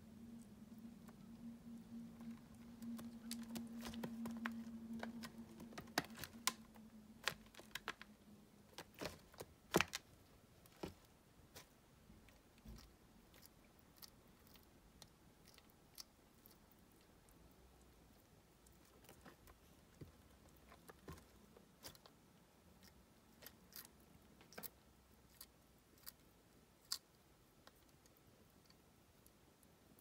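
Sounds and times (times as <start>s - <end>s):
low hum: 0.0s - 9.0s.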